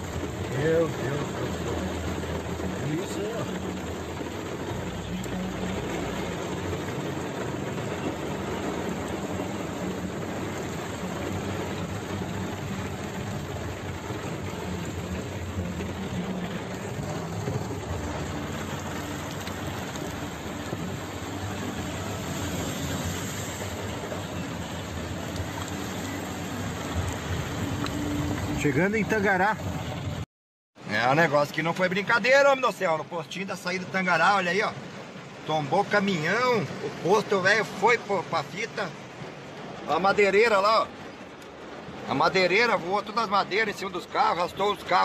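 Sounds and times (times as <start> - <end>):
tyre hiss on wet road: 0.0 - 28.3
low engine hum: 0.0 - 28.8.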